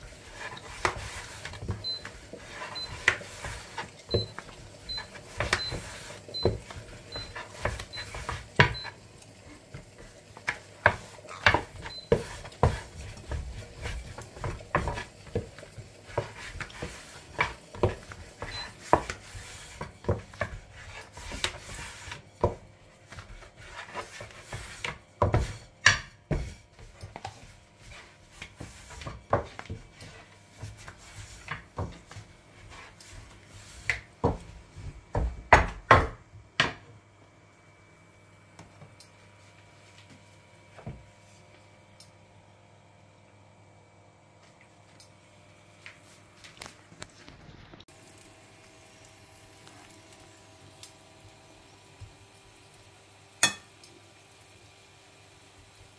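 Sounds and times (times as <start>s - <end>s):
soft rubbing of dough: 0.0s - 35.2s, 38.8s - 41.8s, 45.7s - 48.3s.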